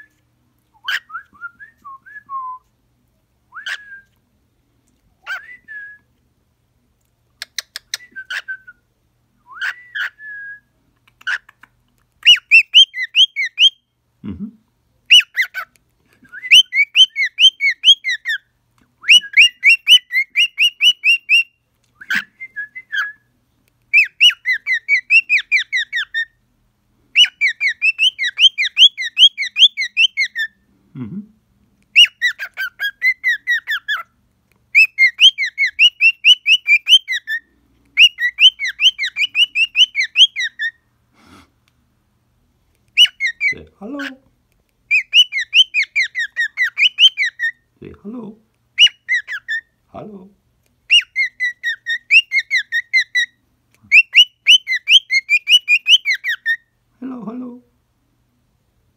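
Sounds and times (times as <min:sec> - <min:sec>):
cockatiel chirping: 0:09.6 - 0:10.2, 0:11.0 - 0:13.9, 0:15.1 - 0:15.7, 0:16.5 - 0:18.5, 0:19.1 - 0:22.3, 0:23.9 - 0:26.4, 0:27.2 - 0:30.6, 0:31.9 - 0:34.1, 0:34.7 - 0:40.8, 0:42.9 - 0:44.1, 0:44.9 - 0:47.6, 0:48.8 - 0:49.7, 0:50.9 - 0:56.7.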